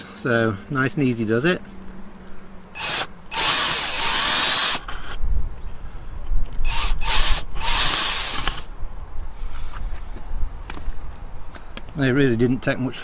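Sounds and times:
cordless drill drilling metal: 2.8 - 5.1, 6.6 - 8.7.

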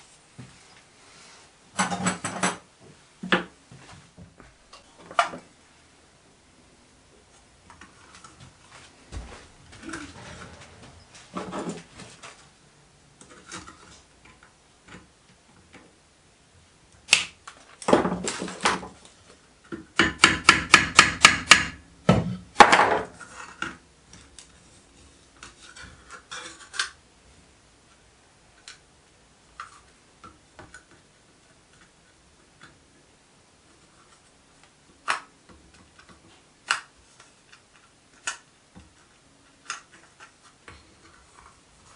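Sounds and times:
copper sheet rubbing and clattering: 8.0 - 12.5
hammer tapping copper sheet: 20.0 - 21.8.

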